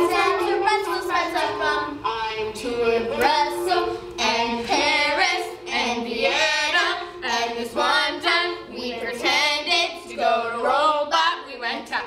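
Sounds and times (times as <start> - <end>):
girls singing together: 0.0 - 12.0.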